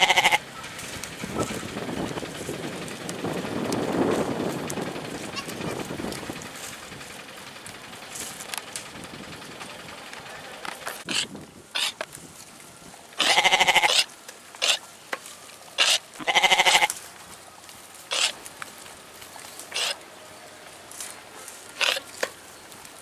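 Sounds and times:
goats bleating: 0:00.0 - 0:00.5, 0:05.2 - 0:05.9, 0:13.2 - 0:14.8, 0:15.8 - 0:17.0.

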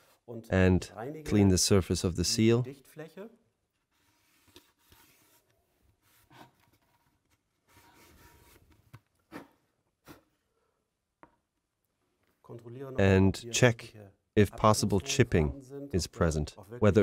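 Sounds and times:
cloth rubbing on plastic: 0:03.9 - 0:08.8.

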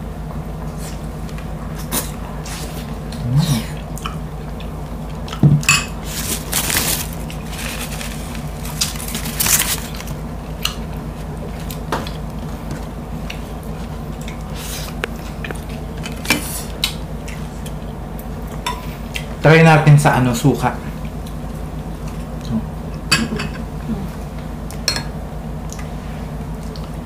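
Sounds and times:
chewing crispy food: 0:01.4 - 0:05.4, 0:06.0 - 0:19.4.

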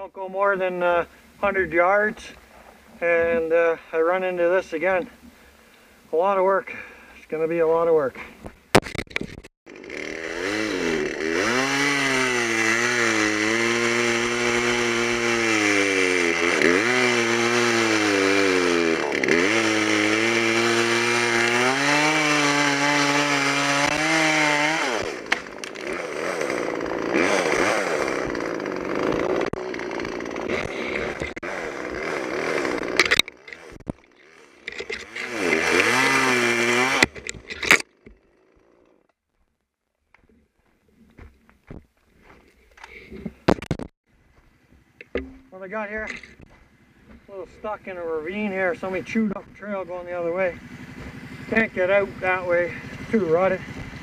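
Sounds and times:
chainsaw cutting wood: 0:08.8 - 0:39.1, 0:47.8 - 0:54.0.

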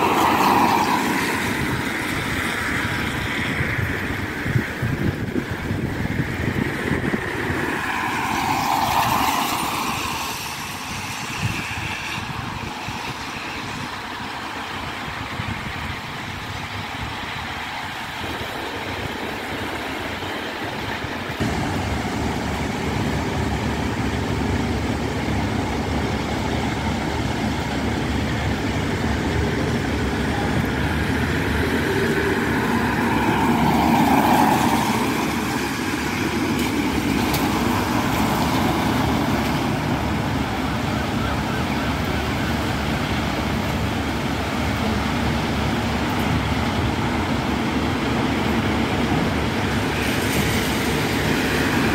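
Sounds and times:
tyres hissing on wet road: 0:00.0 - 0:51.9
low vehicle rumble: 0:20.8 - 0:51.9.

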